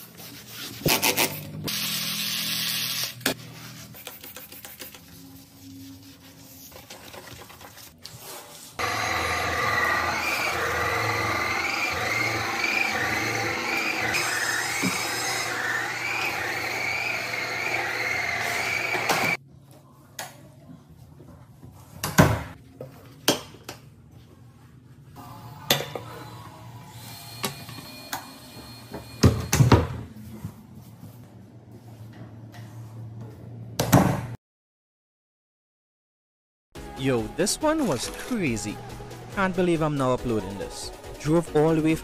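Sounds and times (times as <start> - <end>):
floor cleaner motor hum: 8.8 - 19.4.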